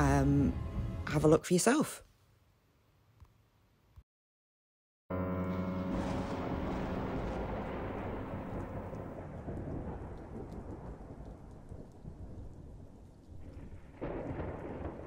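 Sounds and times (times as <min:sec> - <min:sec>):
thunder rumbling: 0:05.1 - 0:15.0.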